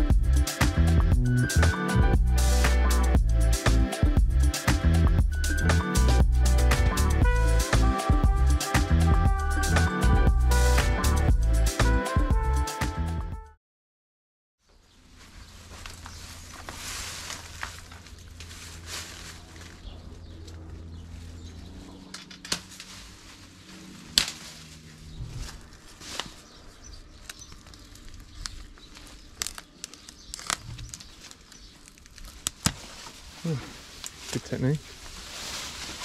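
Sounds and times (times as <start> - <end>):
shrubbery rustling and crackling: 14.6 - 36.0
branches snapping: 15.6 - 20.7, 22.0 - 23.3, 23.9 - 26.6, 27.2 - 36.0.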